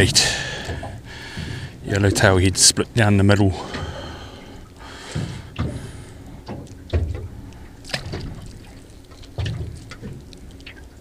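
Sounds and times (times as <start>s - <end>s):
water lapping against boat hull: 0.0s - 11.0s
dull knocks and thuds: 6.5s - 7.3s.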